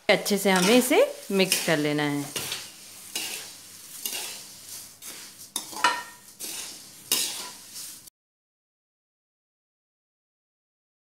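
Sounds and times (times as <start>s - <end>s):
spatula scraping metal pan: 0.2s - 8.1s.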